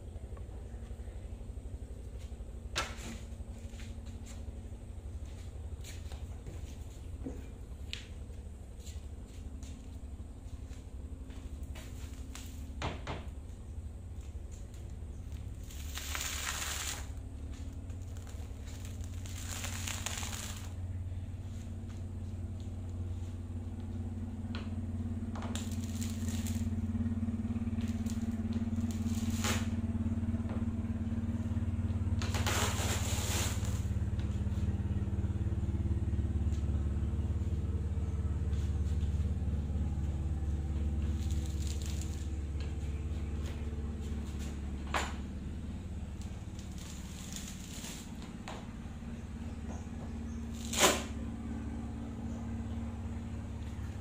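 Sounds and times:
low mechanical hum: 0.0s - 54.0s
tape peeling with crackling rips: 11.8s - 12.8s, 14.2s - 20.8s, 25.3s - 30.0s, 32.2s - 34.3s, 40.5s - 44.5s, 46.2s - 49.5s, 50.3s - 51.2s.

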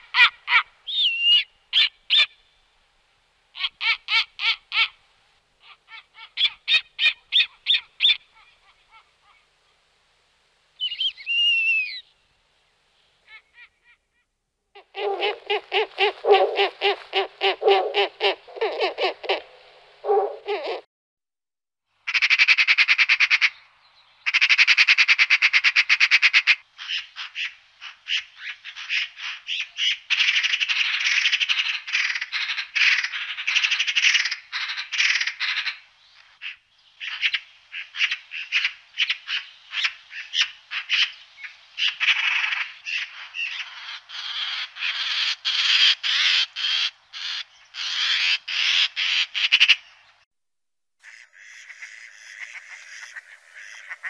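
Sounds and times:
magpies chattering: 51.0s - 54.0s.

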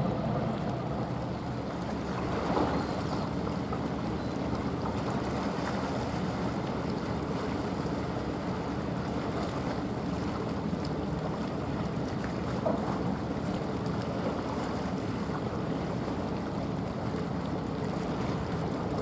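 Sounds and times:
ship diesel engine droning: 0.0s - 5.3s
water splashing along hull: 0.0s - 19.0s.

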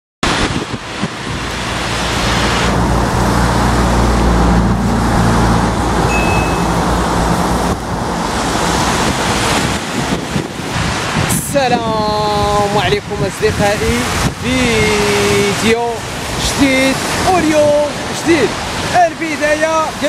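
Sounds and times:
heavy vehicle engine hum: 0.2s - 11.3s
floodwater rushing in a channel: 0.2s - 20.0s
road traffic: 0.2s - 20.0s.

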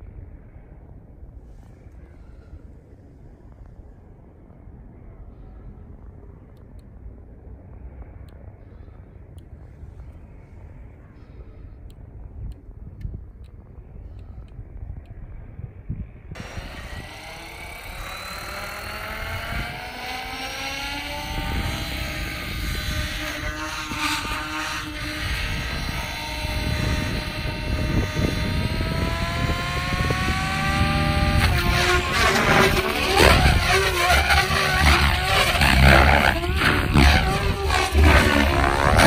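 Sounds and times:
model helicopter motor and rotor whine: 16.4s - 39.0s.

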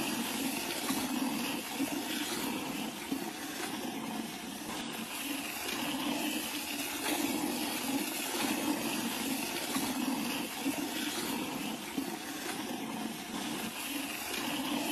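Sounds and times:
milk squirting into bucket: 0.0s - 14.9s.

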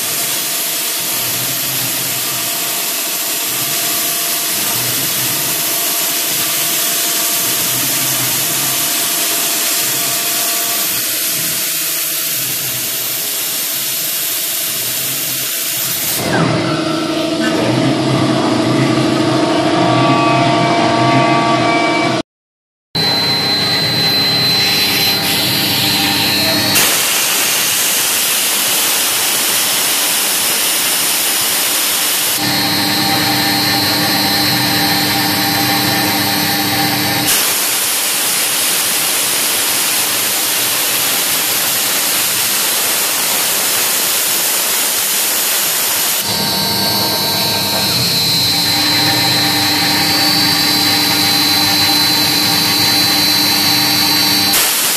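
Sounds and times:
loud hiss: 0.0s - 16.2s, 23.6s - 54.9s
router spindle whining: 23.0s - 37.6s, 45.6s - 54.9s.

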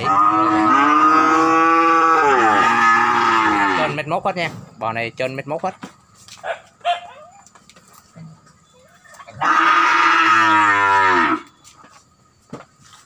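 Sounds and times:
cow mooing: 0.0s - 4.0s, 9.4s - 11.5s.

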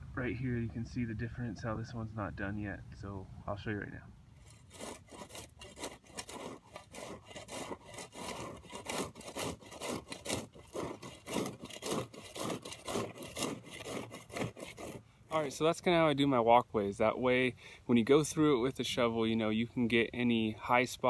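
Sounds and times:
shovel scraping soil: 4.4s - 15.0s.

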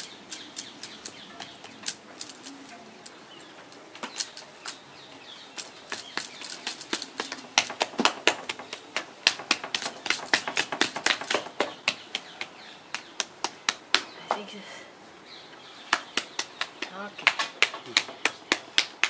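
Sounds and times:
rapid sharp tool tapping: 5.9s - 12.5s.

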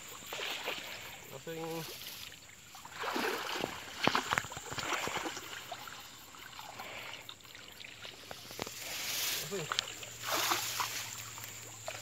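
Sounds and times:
hand net splashing through water: 1.8s - 6.8s, 7.6s - 12.0s.

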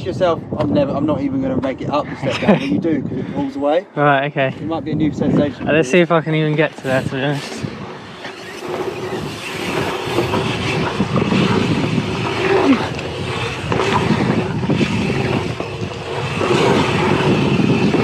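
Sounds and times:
bike tyres rumbling on dirt: 6.6s - 18.0s.

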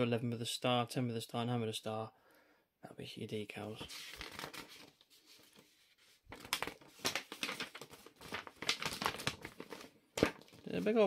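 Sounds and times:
paper pages rustling: 3.8s - 11.0s.

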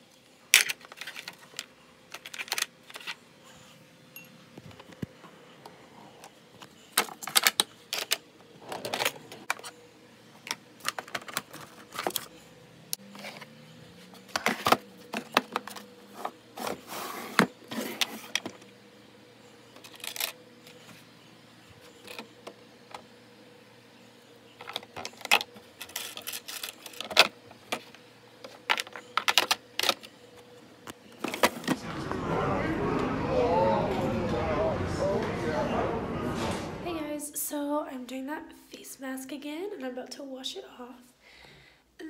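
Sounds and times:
faint steady hum: 0.0s - 42.0s
objects clicking and rattling in drawers: 0.6s - 3.2s, 6.9s - 9.7s, 24.6s - 30.1s.

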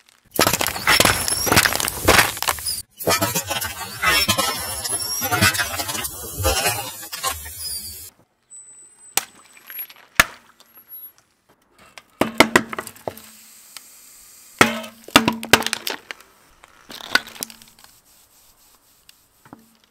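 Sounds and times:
cans crunching under a tyre: 0.0s - 2.9s, 15.1s - 18.0s
sharp crack: 0.0s - 6.6s.

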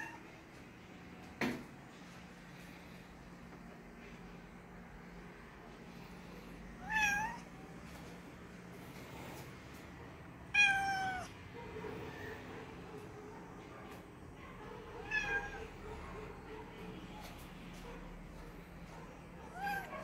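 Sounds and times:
cat meowing: 6.8s - 7.5s, 10.5s - 11.3s, 15.0s - 15.8s, 19.4s - 20.0s.

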